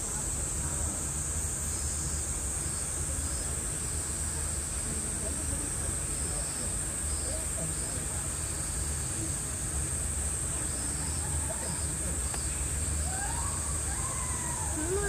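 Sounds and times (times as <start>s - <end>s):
cicadas droning: 0.0s - 15.0s
low outdoor rumble: 0.0s - 15.0s
people's voices: 3.0s - 15.0s.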